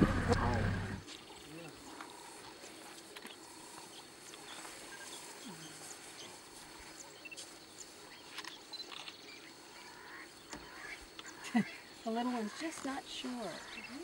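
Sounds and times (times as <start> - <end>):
elephants calling: 0.0 - 6.9.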